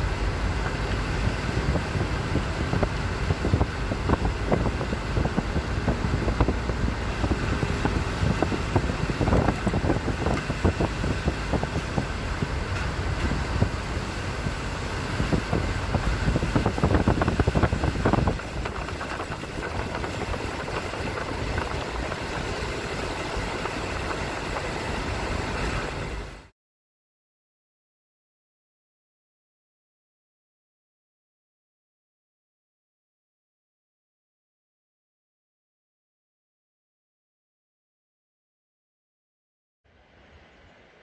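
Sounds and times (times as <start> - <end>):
car engine and road noise: 0.0 - 26.5
wind: 0.0 - 26.5, 39.8 - 41.0.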